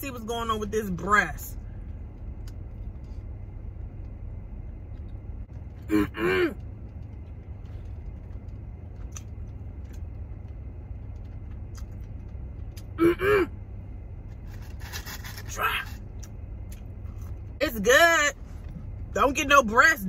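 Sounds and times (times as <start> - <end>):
car cabin rumble: 0.0 - 20.0
woman humming: 13.0 - 13.5.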